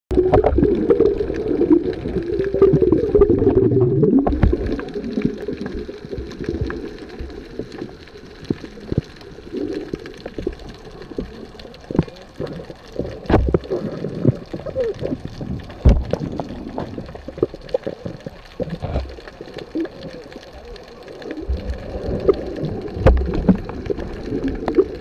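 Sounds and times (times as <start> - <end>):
underwater bubbling gurgle: 0.1 - 25.0
underwater clicks and taps: 4.2 - 4.8, 10.2 - 20.2, 21.6 - 25.0.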